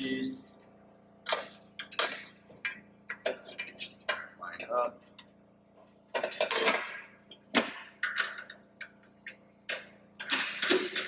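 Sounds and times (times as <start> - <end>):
metal clanks and clicks: 6.1 - 7.0.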